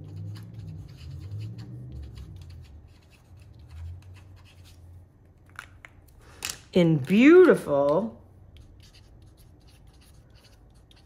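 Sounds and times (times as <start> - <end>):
marker scratching on cardstock: 0.0 - 4.9, 8.5 - 11.0.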